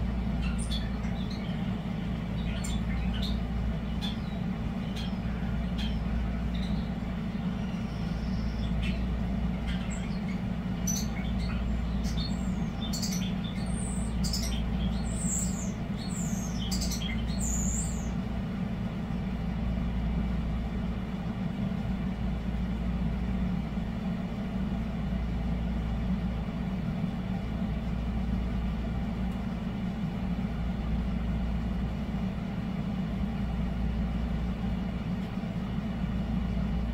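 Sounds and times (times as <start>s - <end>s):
air conditioner humming: 0.0s - 36.9s
starlings chirping and whistling: 0.4s - 18.2s.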